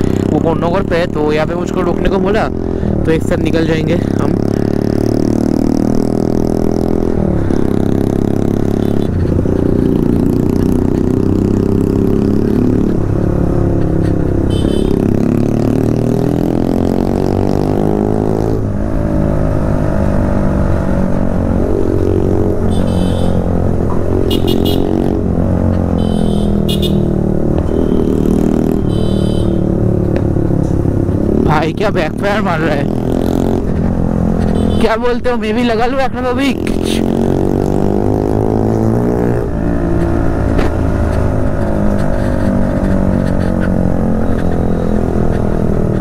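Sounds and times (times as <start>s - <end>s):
motorcycle engine revving: 0.0s - 46.0s.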